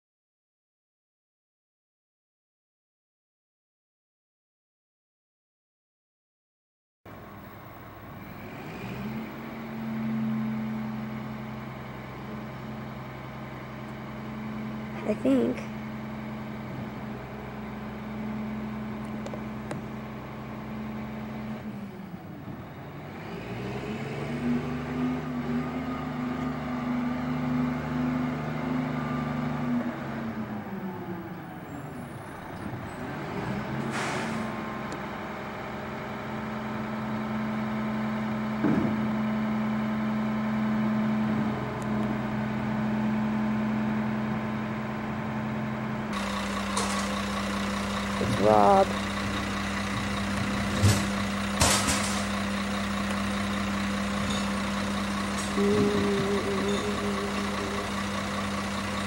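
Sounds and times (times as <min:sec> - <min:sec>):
truck diesel engine running: 0:07.1 - 0:59.0
air brake hiss: 0:33.9 - 0:34.5.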